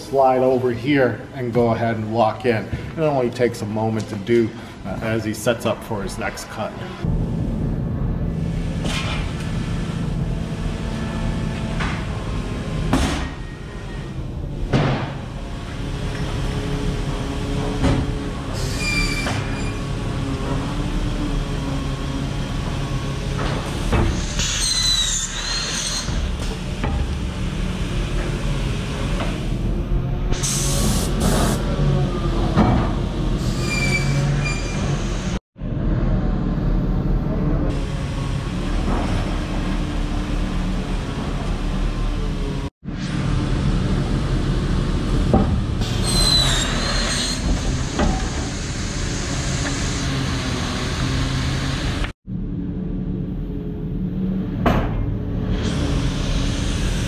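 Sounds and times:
saw and machinery running: 15.3s - 52.1s, 55.2s - 57.0s
high-pitched saw squealing: 18.6s - 19.9s, 24.2s - 26.3s, 33.4s - 35.4s, 45.8s - 50.3s.

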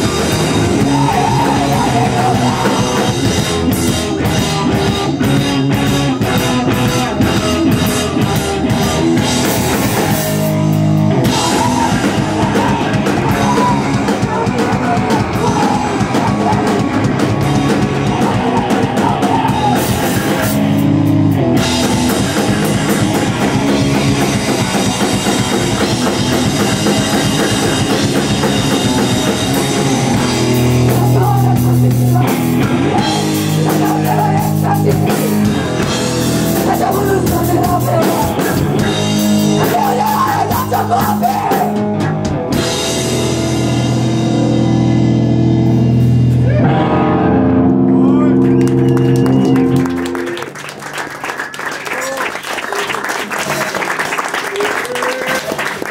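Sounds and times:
vocals: 0.0s - 10.4s, 11.1s - 20.6s, 24.3s - 42.2s
distorted guitar: 0.0s - 50.6s
drum kit: 0.0s - 50.7s
bass guitar: 0.0s - 55.9s.

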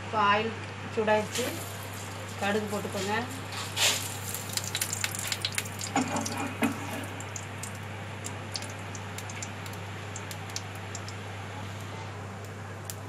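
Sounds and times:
oil sizzling: 1.3s - 13.0s
mustard seeds popping in oil: 3.8s - 13.0s.

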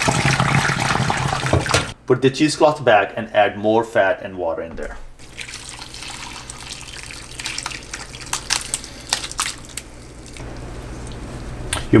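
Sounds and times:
liquid splashing pour: 0.0s - 1.9s, 5.2s - 11.5s.

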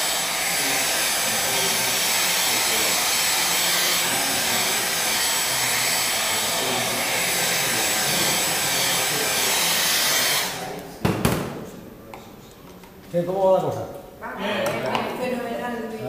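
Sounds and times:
hair dryer blowing: 0.0s - 10.8s.

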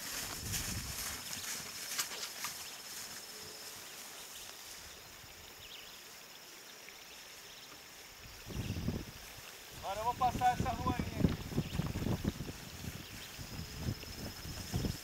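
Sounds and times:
mule hoofbeats on grass: 0.0s - 5.0s, 9.1s - 15.0s
faint pasture background: 0.0s - 15.0s
high insect trill: 0.0s - 15.0s.

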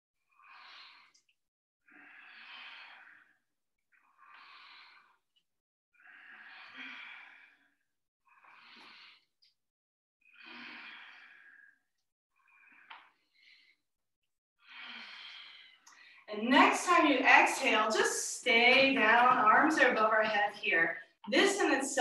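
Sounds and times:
deep breaths: 0.3s - 1.3s, 1.9s - 5.4s, 6.0s - 9.6s, 10.2s - 13.9s, 14.6s - 16.3s.

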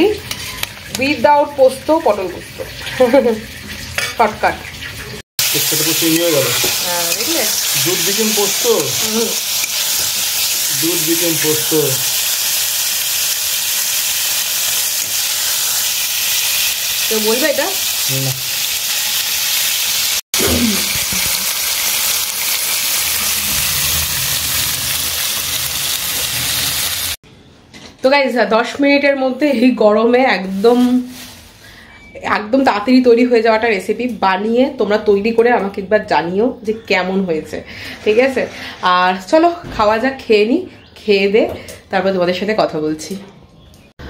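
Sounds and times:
food sizzling in a pan: 0.0s - 27.2s, 30.5s - 31.6s.

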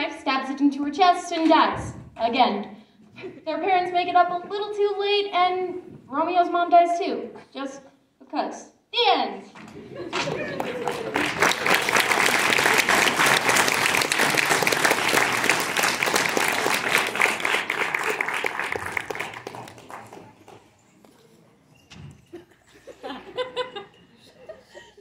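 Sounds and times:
audience applauding: 10.1s - 20.8s.

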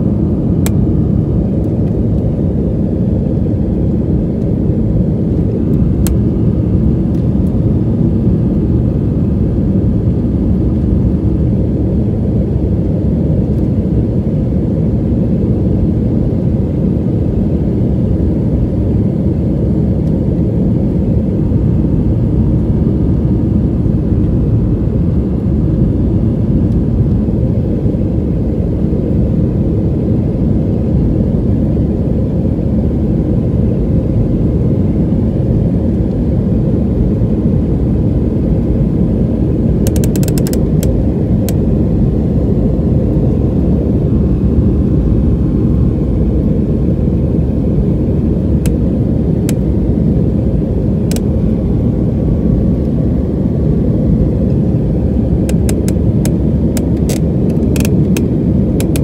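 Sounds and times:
jet engines roaring: 32.7s - 59.0s
sharp clicks: 39.8s - 40.9s, 55.5s - 59.0s.

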